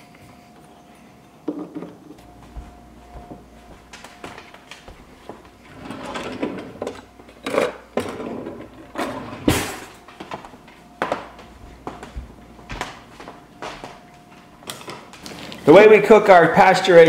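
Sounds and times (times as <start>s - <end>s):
drawer opening: 5.7s - 10.0s
utensils clattering: 5.7s - 10.2s.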